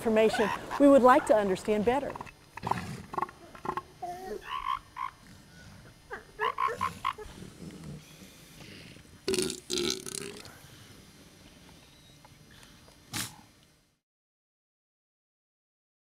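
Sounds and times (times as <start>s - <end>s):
elephant seals croaking: 2.1s - 9.1s.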